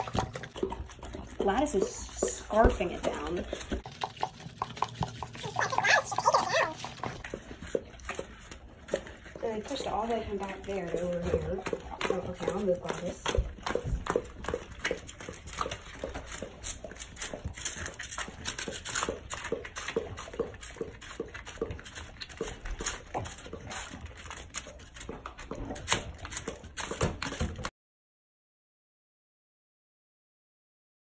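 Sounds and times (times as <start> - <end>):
dogs licking and lapping: 0.0 - 27.7.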